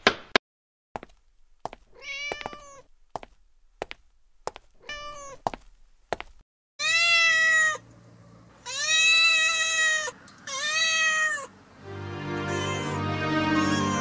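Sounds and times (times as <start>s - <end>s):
kitten meowing: 4.8s - 5.4s, 6.8s - 7.8s, 8.6s - 11.5s, 13.6s - 14.0s
music: 11.8s - 14.0s.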